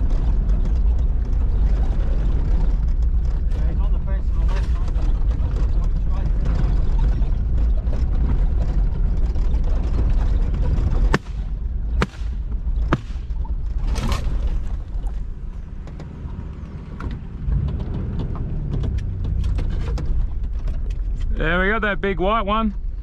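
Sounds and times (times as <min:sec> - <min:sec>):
vehicle engine rumble: 0:00.0 - 0:23.0
shotgun shots: 0:11.1 - 0:13.5.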